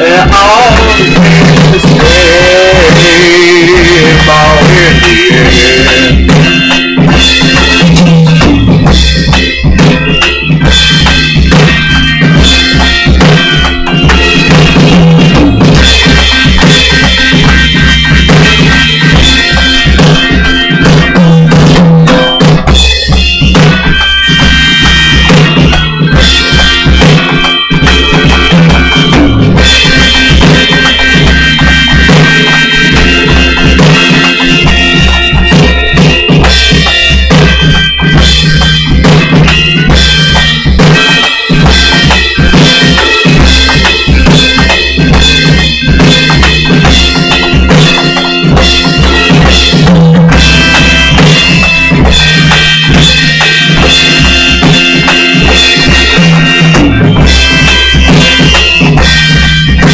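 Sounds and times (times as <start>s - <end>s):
drum kit beat: 0.0s - 59.9s
loud band music: 0.0s - 59.9s
deep bass line: 48.6s - 59.9s.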